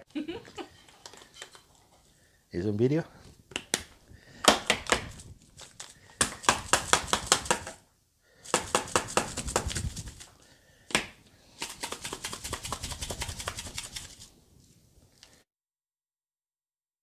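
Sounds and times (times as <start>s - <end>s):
seasoning container rapid clicks: 6.3s - 7.8s, 8.4s - 10.3s, 11.5s - 14.3s.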